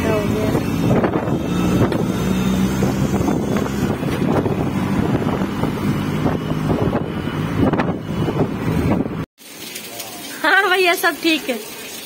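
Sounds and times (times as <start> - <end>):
vehicle engine droning: 0.0 - 9.3
wind buffeting microphone: 0.0 - 9.3.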